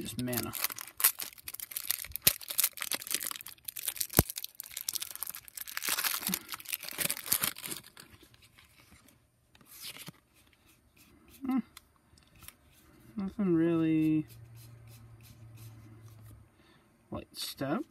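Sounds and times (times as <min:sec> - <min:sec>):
foil wrapper tearing and crinkling: 0:00.0 - 0:08.1.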